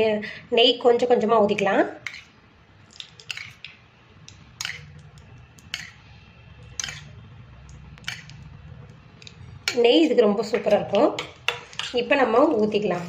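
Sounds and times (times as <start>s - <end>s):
low steady hum: 0.0s - 13.0s
metal spoon clinking on metal: 3.0s - 3.7s, 4.3s - 5.0s, 5.6s - 6.0s, 6.8s - 7.1s, 8.0s - 8.4s, 9.2s - 12.1s.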